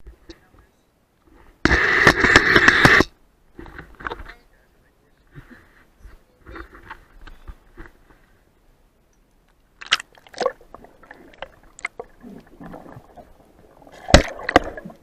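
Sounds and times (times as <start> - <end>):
sharp underwater clicks and knocks: 1.7 - 4.3, 9.1 - 10.6, 14.0 - 15.0
faint underwater gurgling: 9.8 - 15.0.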